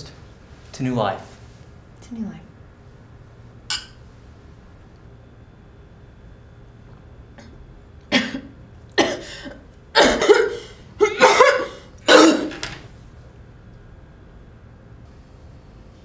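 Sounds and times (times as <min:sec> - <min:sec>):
woman choking and coughing: 0:07.4 - 0:12.6.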